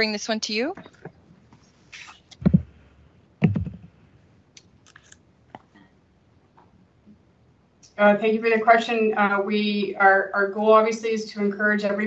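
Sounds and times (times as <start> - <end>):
dull knocks: 2.4 - 2.8, 3.4 - 3.9.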